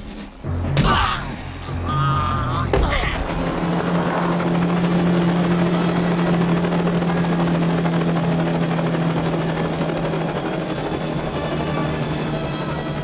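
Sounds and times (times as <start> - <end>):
helicopter rotor and turbine: 1.6 - 13.0.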